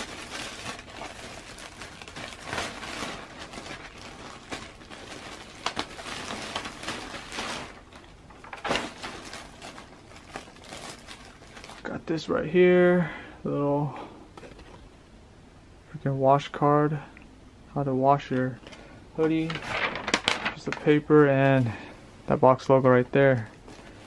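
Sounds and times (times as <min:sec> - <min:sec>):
plastic bags crinkling: 0:00.0 - 0:12.5, 0:18.6 - 0:21.9.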